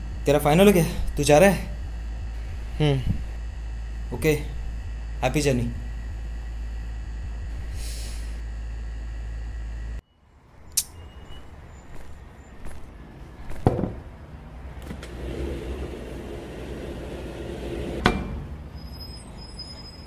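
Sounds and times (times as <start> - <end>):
low rumble and hiss: 0.0 - 10.0.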